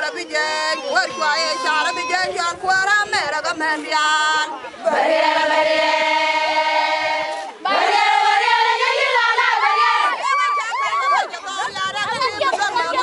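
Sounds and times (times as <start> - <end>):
women singing together: 0.0 - 13.0.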